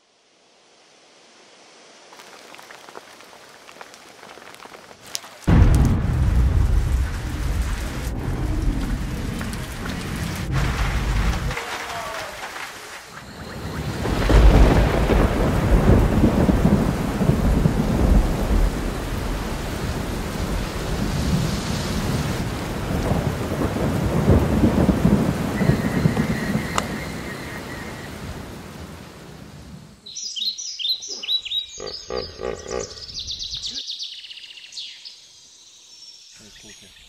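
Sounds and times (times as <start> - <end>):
steady rain: 0.0 - 30.0
thunder rumbling: 5.5 - 29.8.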